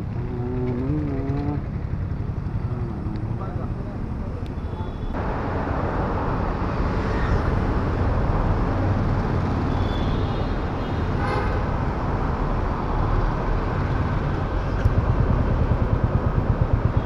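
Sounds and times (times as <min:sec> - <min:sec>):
motorcycle engine running: 0:00.0 - 0:03.2, 0:14.8 - 0:17.0
road noise: 0:00.0 - 0:17.0
traffic noise: 0:00.0 - 0:17.0.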